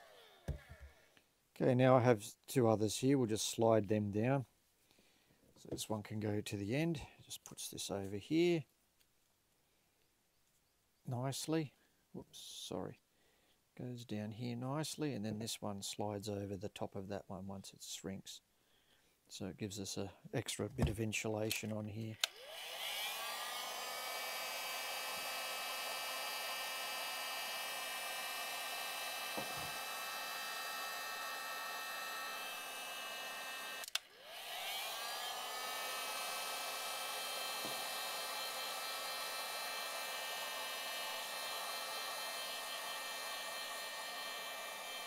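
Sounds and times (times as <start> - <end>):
heat gun fan whine: 0.0 - 1.0, 22.2 - 45.0.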